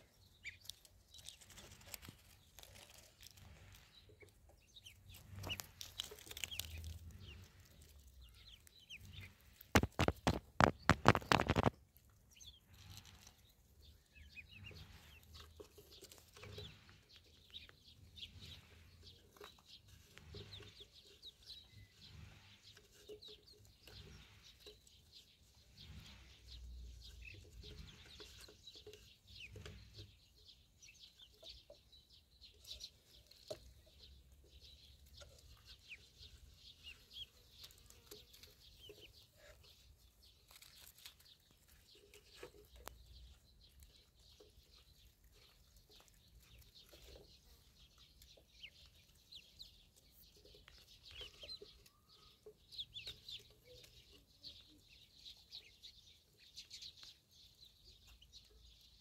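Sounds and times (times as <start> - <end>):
ducklings peeping: 0.0 - 59.0
bills ticking and rustling in grass: 0.2 - 22.4, 32.6 - 51.9
loud pecking knocks: 9.7 - 11.8.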